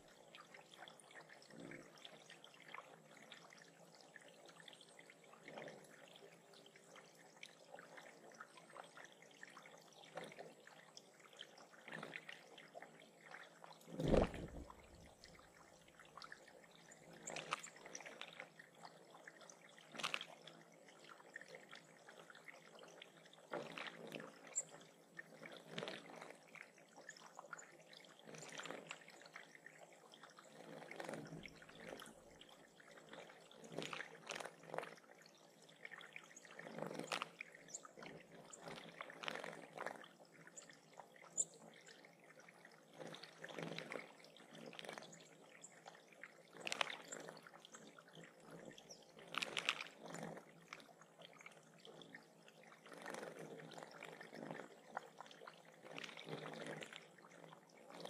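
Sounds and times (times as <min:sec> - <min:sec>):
water trickling and splashing: 0:00.0 - 0:58.0
low thump: 0:14.0 - 0:14.9.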